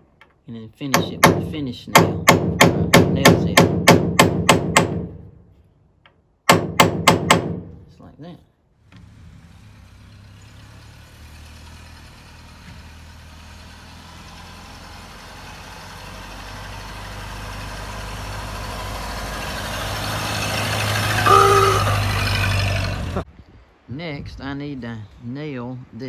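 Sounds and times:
car engine hum: 8.8s - 23.3s
short pitched tone: 21.2s - 22.1s.

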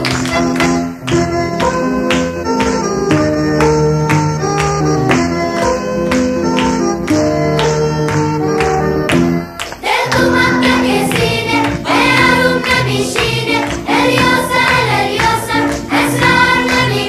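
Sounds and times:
background music: 0.0s - 17.0s
voices singing: 9.6s - 17.0s.

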